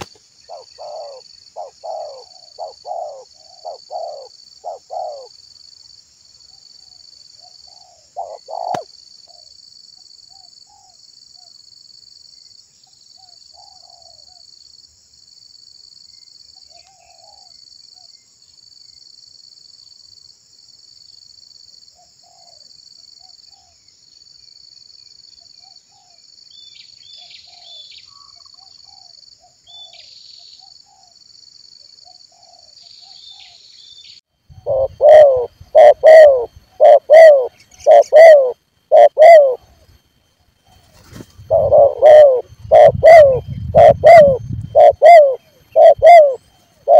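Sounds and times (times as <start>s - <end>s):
dove cooing: 0.0s - 5.3s, 7.7s - 8.9s, 34.6s - 39.8s, 40.8s - 46.9s
small birds chirping: 0.0s - 5.3s, 6.5s - 9.5s
high insect drone pulsing: 0.0s - 11.0s, 34.5s - 46.9s.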